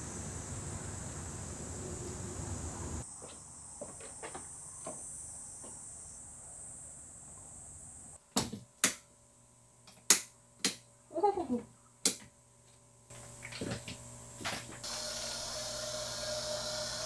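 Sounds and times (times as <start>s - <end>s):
crickets chirping: 0.0s - 8.2s.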